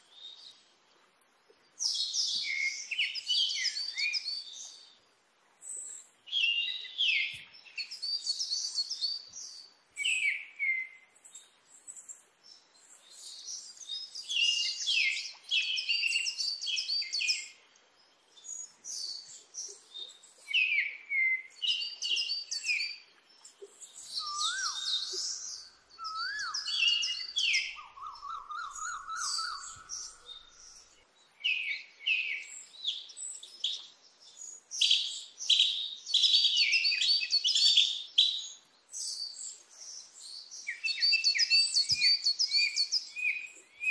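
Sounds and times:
birds chirping: 0:05.6 - 0:43.9
bird whistle and trill: 0:24.0 - 0:32.5, 0:40.6 - 0:43.9.

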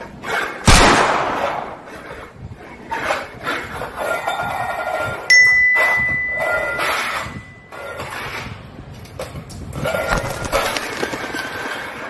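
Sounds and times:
metal bowl ringing ding: 0:05.3 - 0:08.0.

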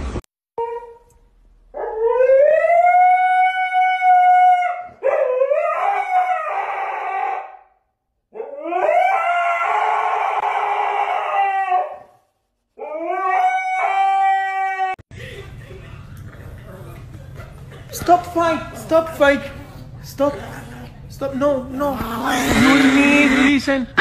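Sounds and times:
dog howling: 0:01.8 - 0:07.7, 0:08.3 - 0:12.2, 0:12.8 - 0:15.0.

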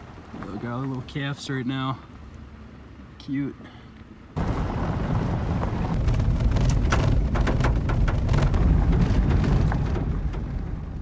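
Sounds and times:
road and tyre rumble: 0:00.0 - 0:11.0
gravel ticking against truck: 0:03.2 - 0:11.0.

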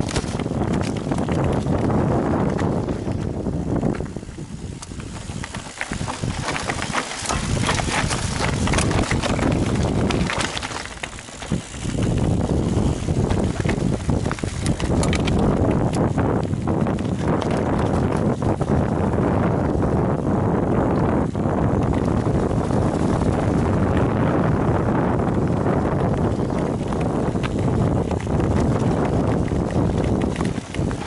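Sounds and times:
bike rattling: 0:00.0 - 0:31.0
wind rumbling on microphone: 0:00.0 - 0:31.0.

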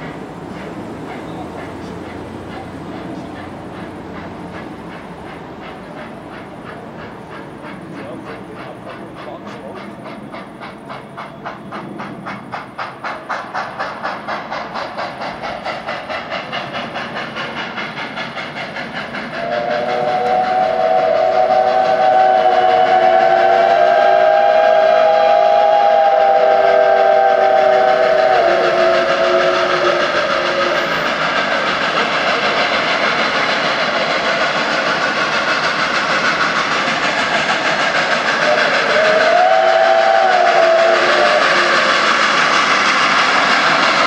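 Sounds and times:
steam locomotive chuffing: 0:00.0 - 0:44.0
steam whistle chord: 0:19.4 - 0:30.0, 0:38.4 - 0:41.5.

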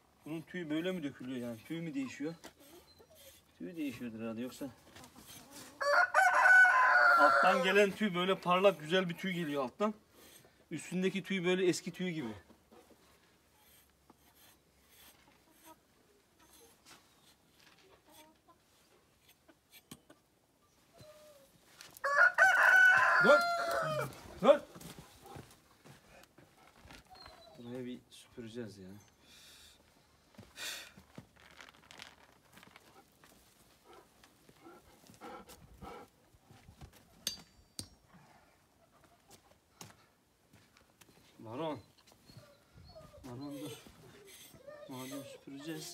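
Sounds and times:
chicken clucking: 0:17.8 - 0:20.3.

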